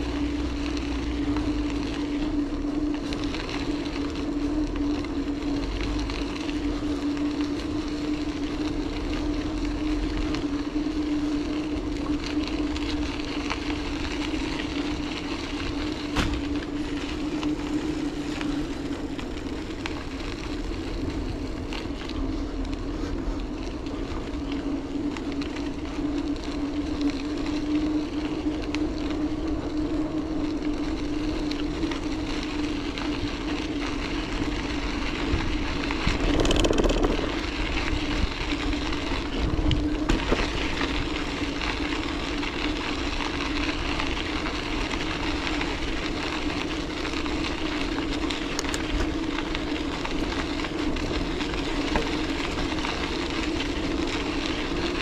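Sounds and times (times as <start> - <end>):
bicycle tyres rolling: 0.0 - 55.0
wind rumbling on microphone: 0.0 - 55.0.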